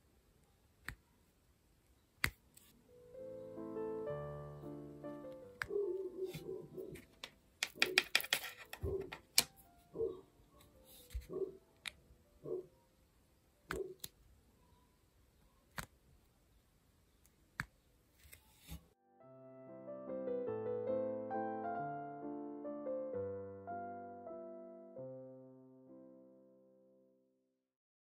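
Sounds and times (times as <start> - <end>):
dog barking: 5.6 - 7.0, 9.9 - 10.3, 11.2 - 11.6, 12.4 - 12.8.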